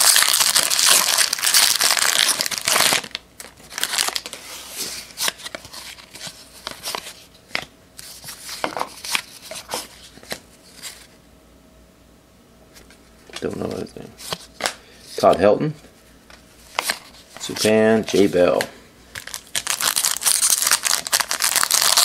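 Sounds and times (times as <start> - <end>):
foil wrapper crinkling and tearing: 0.0 - 4.4, 19.1 - 22.0.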